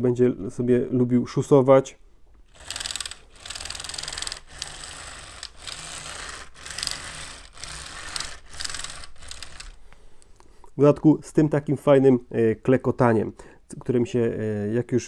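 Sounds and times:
toy tank tracks clattering: 2.5 - 9.8.

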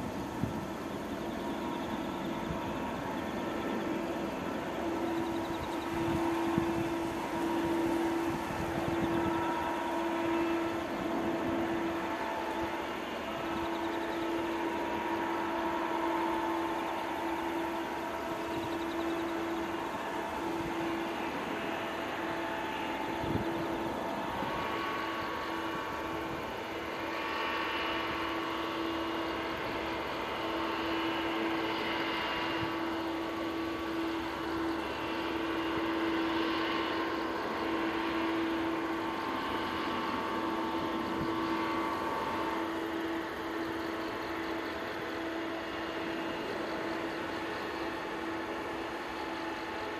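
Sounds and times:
jet engines humming and whining: 0.0 - 49.9.

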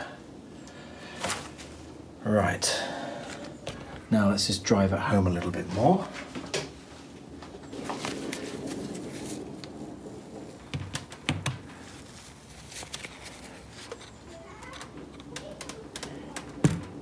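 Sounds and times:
gloved hands rustling: 7.5 - 14.4
small clicks and taps: 14.6 - 17.0.

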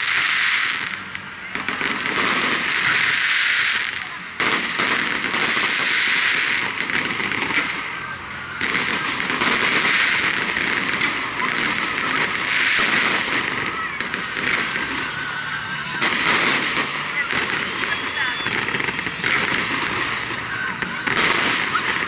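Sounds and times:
fireworks crackling overhead: 0.0 - 22.0.

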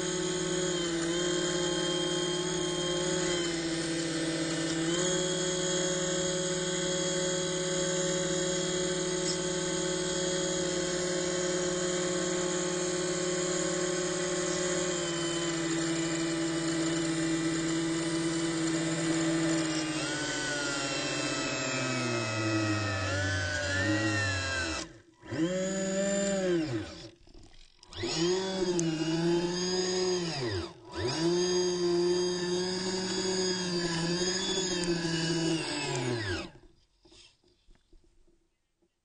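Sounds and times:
electric motor whining: 0.0 - 36.6.

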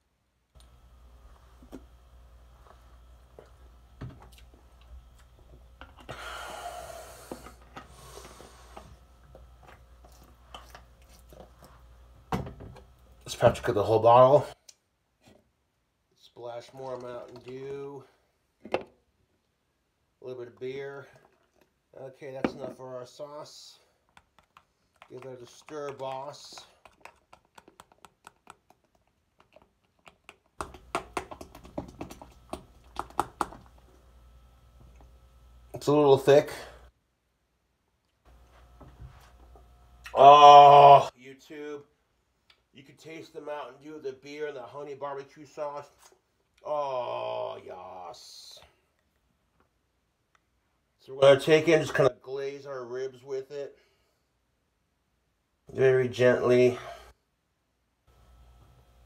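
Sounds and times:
utensil scraping mixing bowl: 24.2 - 33.8.

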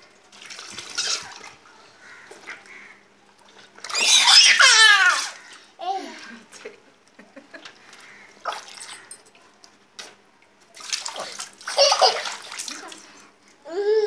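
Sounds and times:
water splashing in metal basin: 0.0 - 2.8, 7.8 - 9.3, 10.7 - 13.2
rubber toy squirting water: 0.3 - 1.7, 3.7 - 5.5, 10.7 - 13.1.

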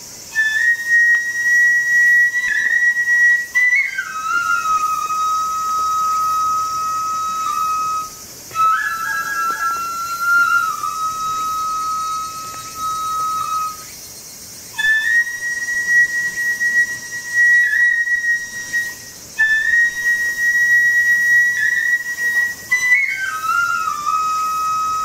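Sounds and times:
bamboo flute playing: 0.0 - 14.1, 14.7 - 25.0.

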